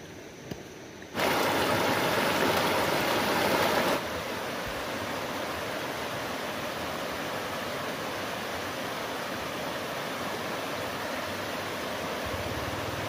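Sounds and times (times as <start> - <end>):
stream rushing over rocks: 1.1 - 13.0.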